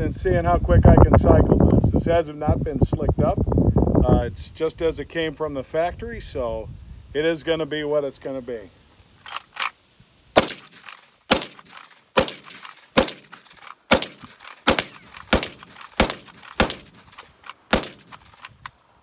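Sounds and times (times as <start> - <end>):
rifle lever action clacking: 9.2 - 9.7, 10.6 - 18.8
rifle shots: 10.4 - 18.5.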